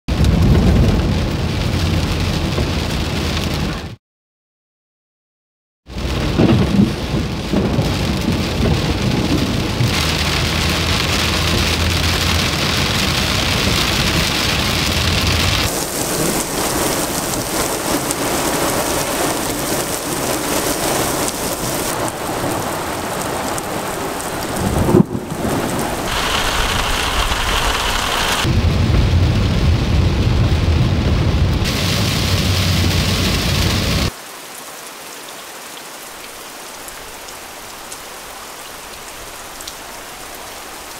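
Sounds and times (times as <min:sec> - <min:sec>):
sharp thunder crack: 0:00.1 - 0:03.2, 0:05.9 - 0:19.6, 0:24.6 - 0:34.1
rolling thunder: 0:00.1 - 0:03.9, 0:05.9 - 0:34.1
heavy rain: 0:00.1 - 0:04.0, 0:05.9 - 0:40.9.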